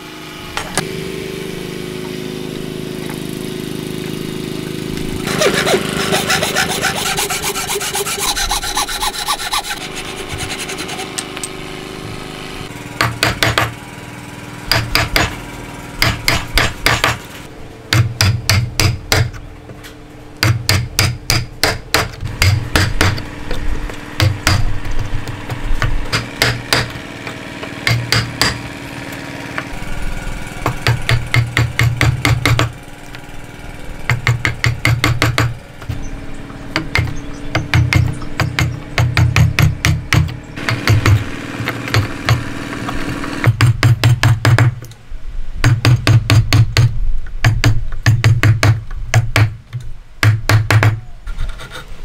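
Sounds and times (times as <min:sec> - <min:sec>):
chisel struck into wood: 0:13.0 - 0:13.7, 0:14.7 - 0:15.4, 0:16.0 - 0:17.2, 0:17.9 - 0:19.4, 0:20.4 - 0:23.3, 0:24.2 - 0:28.6, 0:30.6 - 0:32.7, 0:34.1 - 0:35.5, 0:36.8 - 0:42.4, 0:43.4 - 0:44.8, 0:45.6 - 0:49.6, 0:50.2 - 0:51.0.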